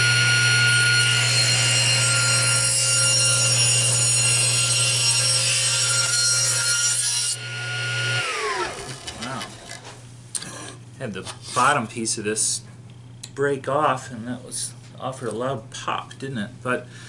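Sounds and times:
table saw cutting wood: 0.0s - 9.8s
saw spinning down: 7.4s - 9.8s.

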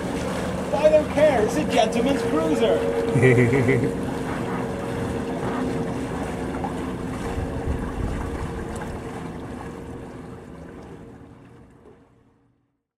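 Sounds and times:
boat wash rushing: 0.0s - 12.2s
low engine hum: 0.0s - 12.8s
wind buffeting microphone: 7.0s - 9.1s.

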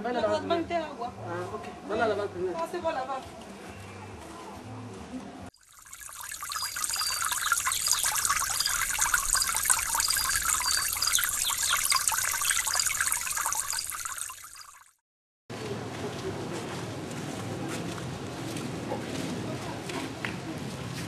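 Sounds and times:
water trickling: 5.5s - 15.0s
faint high chirps: 5.7s - 14.9s.

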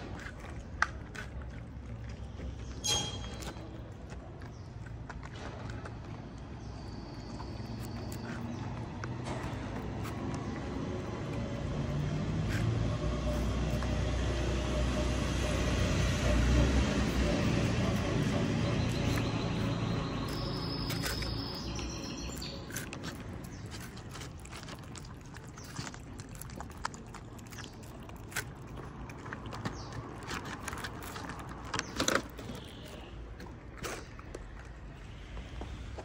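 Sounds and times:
cats chewing kibble: 0.0s - 36.0s
faint high chirps: 18.6s - 22.6s.

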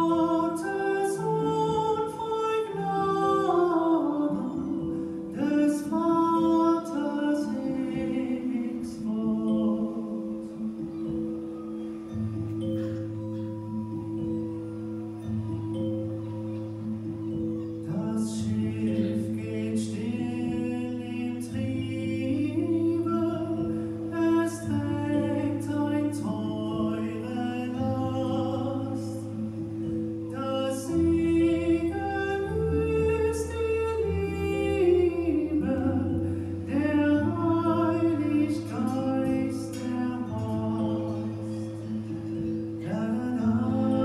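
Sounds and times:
singing voices: 0.0s - 44.0s.

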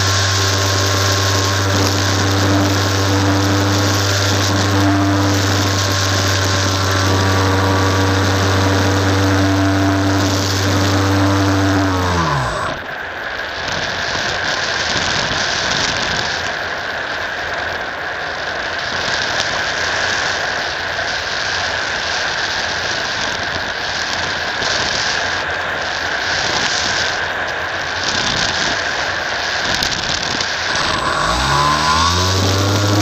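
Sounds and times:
electric motor and propeller whine: 0.0s - 13.2s, 29.7s - 33.0s.

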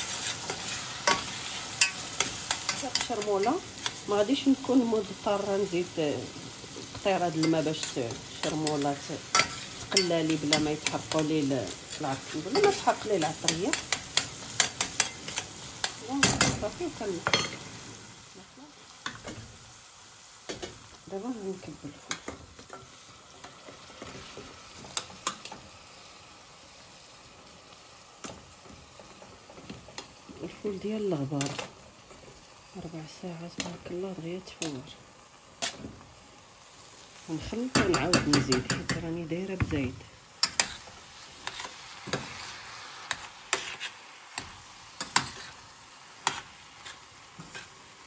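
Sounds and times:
pan sizzling: 0.0s - 48.0s
metal spoon knocking on pan: 37.7s - 39.0s.

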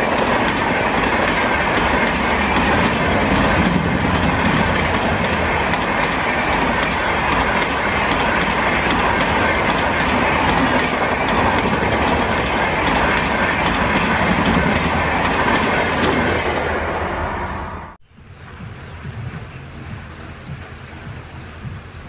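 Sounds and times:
wheels clicking over rail joints: 0.0s - 16.3s
train rushing past: 0.0s - 22.0s.

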